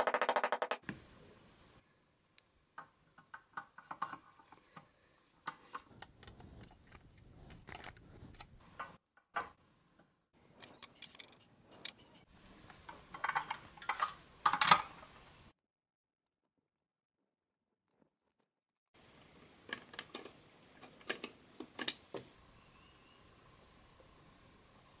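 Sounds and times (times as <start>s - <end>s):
toy truck parts clicking: 5.5s - 8.6s, 10.5s - 12.2s.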